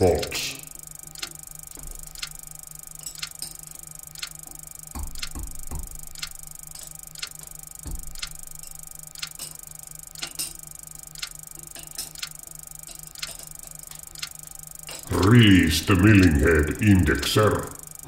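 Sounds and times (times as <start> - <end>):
steady low hum: 0.0 - 18.0
clock ticking: 1.1 - 1.4, 2.0 - 2.4, 3.1 - 3.5, 4.1 - 7.4, 8.0 - 9.6, 11.2 - 11.4, 12.0 - 12.4, 13.0 - 13.5, 14.2 - 14.4, 15.0 - 18.0.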